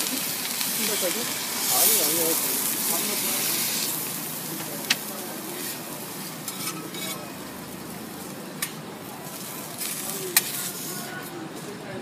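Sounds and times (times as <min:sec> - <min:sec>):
pancake sizzling on griddle: 0:00.0 - 0:11.8
metal spatulas scraping griddle: 0:05.5 - 0:07.4, 0:08.6 - 0:11.4.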